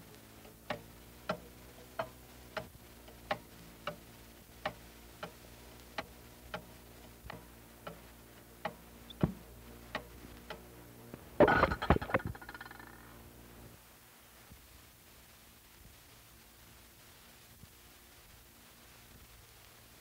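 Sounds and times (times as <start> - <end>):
wall clock ticking: 0.0 - 10.7.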